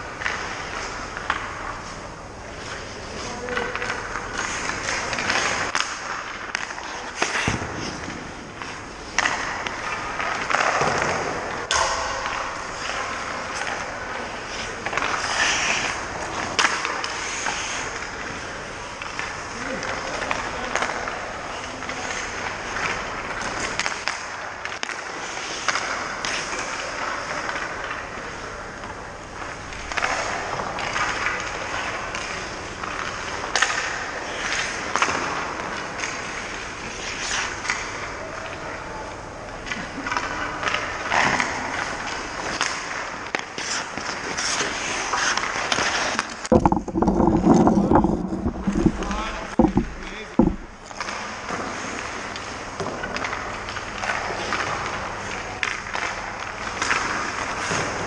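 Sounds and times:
skate blades scraping ice: 0.2s - 28.4s, 29.4s - 38.1s, 39.7s - 58.0s
thump: 46.5s - 50.8s
sharp knocks: 46.5s - 51.0s.

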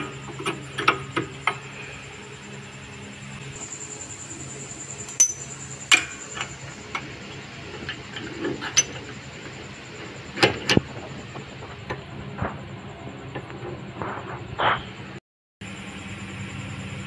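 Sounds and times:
metal clicks: 5.1s - 5.5s
metal tool clinking and knocking: 5.1s - 5.6s.

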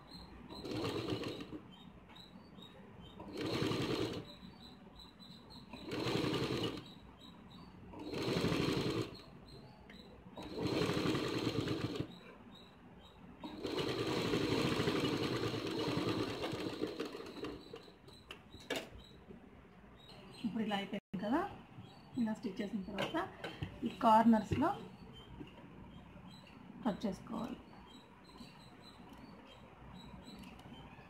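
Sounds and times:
sewing machine stitching: 0.5s - 1.6s, 3.2s - 4.4s, 5.7s - 7.0s, 7.9s - 9.4s, 10.3s - 12.2s, 13.4s - 19.0s.

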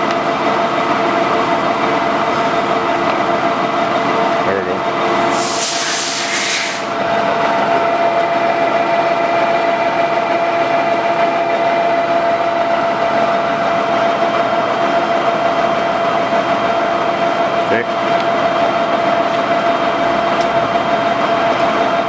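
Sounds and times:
lathe humming with high tone: 0.0s - 22.0s
short hiss: 5.4s - 6.9s.

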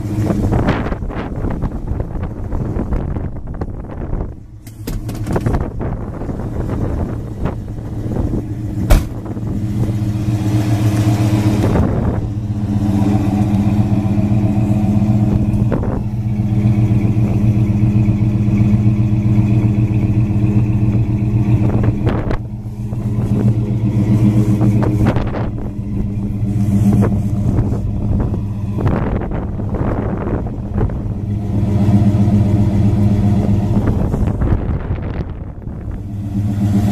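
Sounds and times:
car engine idling: 0.0s - 36.9s
sharp engine knock: 8.9s - 9.3s.

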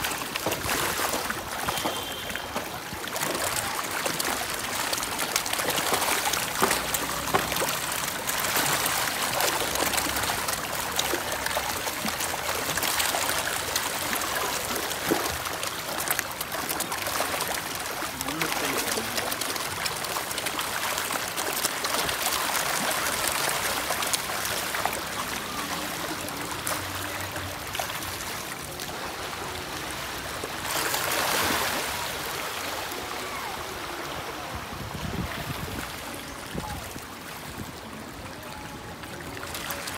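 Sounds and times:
fish thrashing and splashing: 0.0s - 32.8s.

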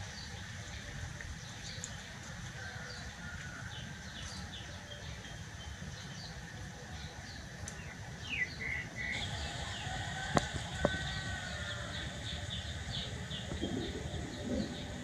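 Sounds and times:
small birds chirping: 0.0s - 15.0s
rooster crowing: 9.2s - 12.3s.

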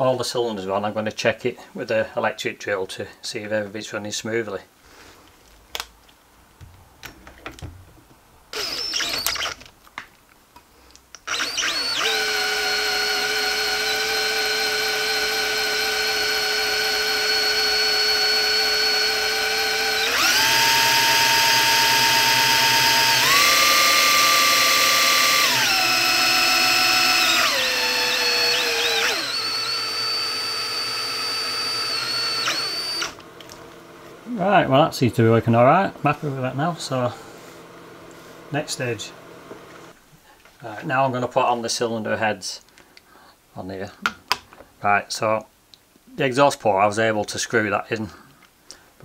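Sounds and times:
electric drill whining: 8.5s - 9.7s, 11.2s - 34.1s.

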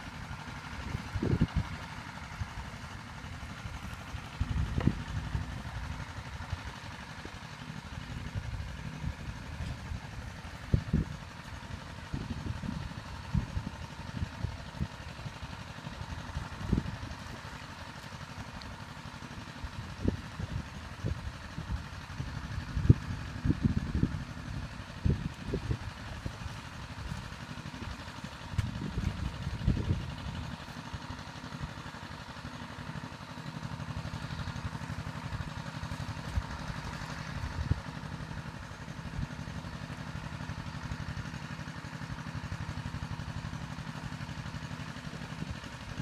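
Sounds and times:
wind buffeting microphone: 0.8s - 1.8s, 10.6s - 11.3s, 19.9s - 27.2s, 28.5s - 30.5s.

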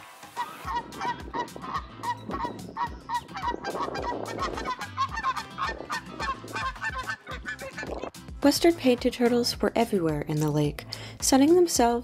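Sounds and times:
geese honking: 0.3s - 8.1s.

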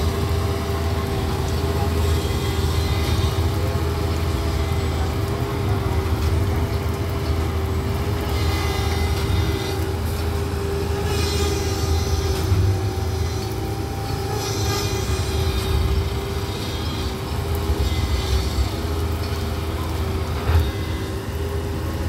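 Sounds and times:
diesel engine rumbling: 0.0s - 22.0s
machine hissing bursts: 8.2s - 21.7s.

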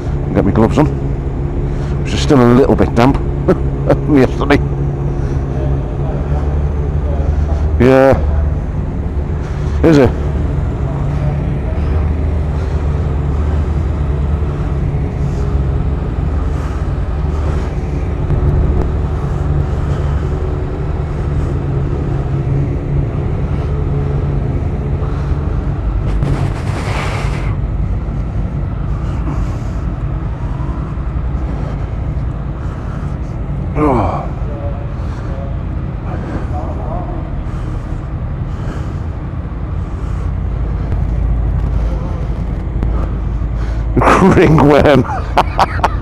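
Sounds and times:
motorcycle engine idling: 3.1s - 26.4s.

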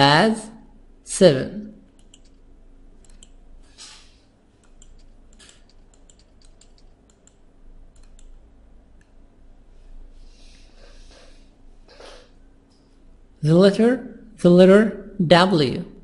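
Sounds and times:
mouse and keyboard clicking: 2.0s - 2.4s, 3.0s - 4.0s, 4.6s - 8.4s.

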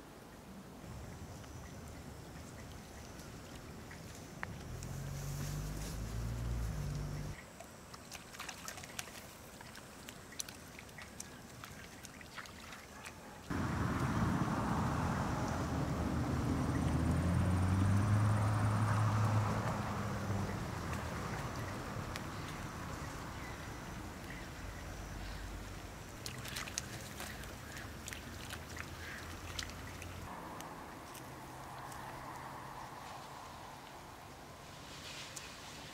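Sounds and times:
outdoor background noise: 0.0s - 35.9s
small splashes and drips: 1.8s - 14.2s, 16.7s - 23.5s, 26.1s - 32.5s.

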